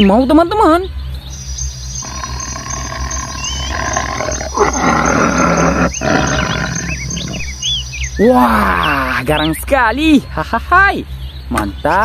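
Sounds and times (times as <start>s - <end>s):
birds chirping faintly: 0.0s - 12.0s
tiger roaring: 2.0s - 7.6s.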